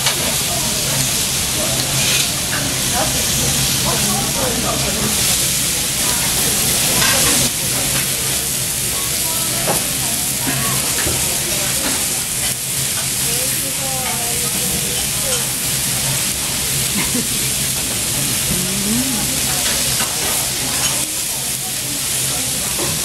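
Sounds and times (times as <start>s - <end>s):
steak sizzling on a griddle: 0.0s - 23.0s.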